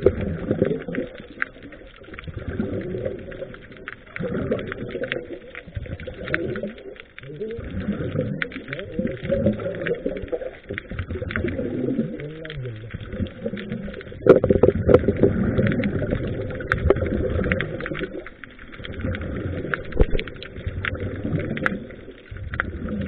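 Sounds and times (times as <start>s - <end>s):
rush of exhaled bubbles: 0.0s - 23.0s.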